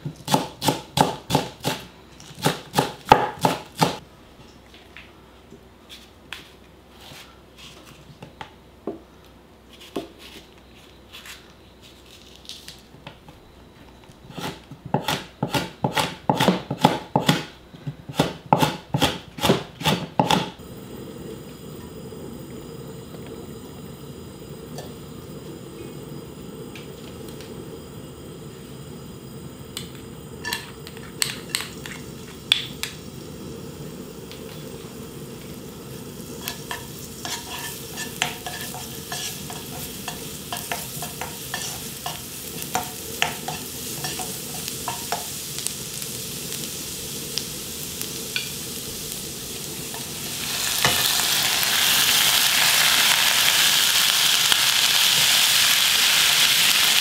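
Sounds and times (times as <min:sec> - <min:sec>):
knife chopping on wooden board: 0:18.1 - 0:20.5
garlic sizzling in oil: 0:18.1 - 0:57.0.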